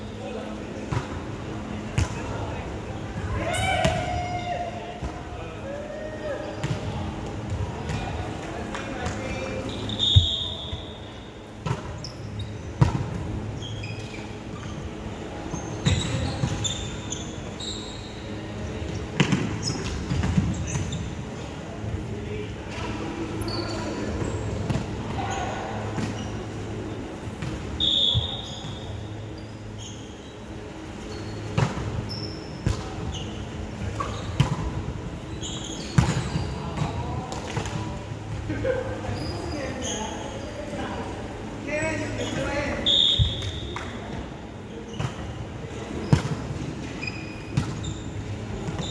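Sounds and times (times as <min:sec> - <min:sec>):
sneakers squeaking on wooden court: 0:09.0 - 0:21.4, 0:23.4 - 0:37.8, 0:39.0 - 0:40.6, 0:41.8 - 0:48.9.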